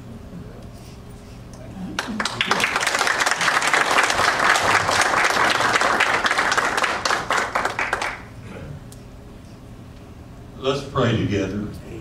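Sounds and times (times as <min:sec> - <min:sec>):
congregation applauding: 0:02.0 - 0:08.4.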